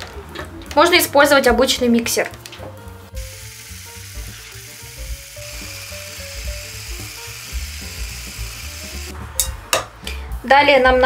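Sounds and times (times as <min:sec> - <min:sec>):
hand blender whisk whining: 0:03.2 - 0:09.1.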